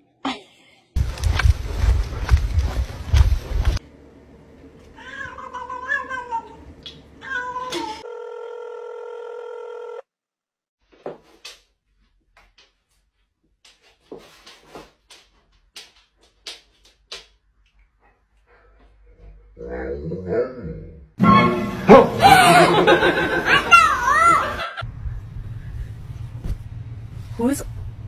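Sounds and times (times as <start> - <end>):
cat meowing: 5.0 - 6.6, 7.2 - 8.0.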